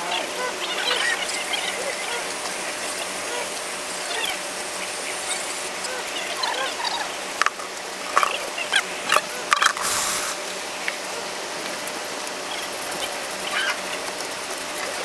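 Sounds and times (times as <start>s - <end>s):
faint chirping calls: 0.0s - 7.2s.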